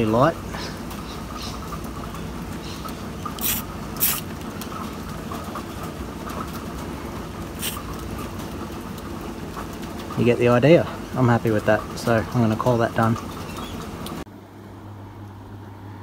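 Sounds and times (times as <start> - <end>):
outdoor background hum: 0.0 - 16.0
spray paint hisses: 3.4 - 4.3, 7.6 - 7.8.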